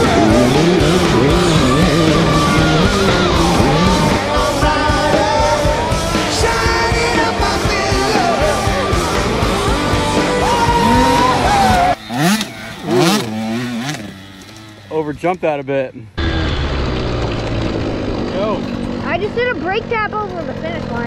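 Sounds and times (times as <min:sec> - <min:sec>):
rock music with singing: 0:00.0 - 0:14.1
steady drum beat: 0:00.0 - 0:14.2.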